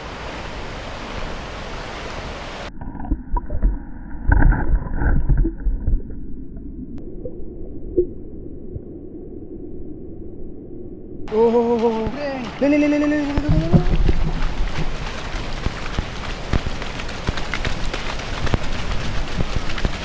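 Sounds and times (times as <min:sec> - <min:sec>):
underwater knocks and rumbles: 0:02.7 - 0:08.9, 0:12.0 - 0:20.0
muffled underwater sound: 0:11.3 - 0:15.0
river water splashing: 0:11.3 - 0:20.0.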